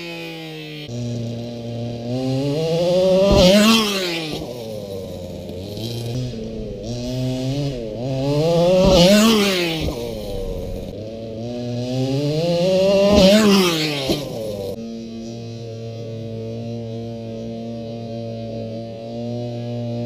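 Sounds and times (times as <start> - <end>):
electric motor whining: 2.7 - 11.2.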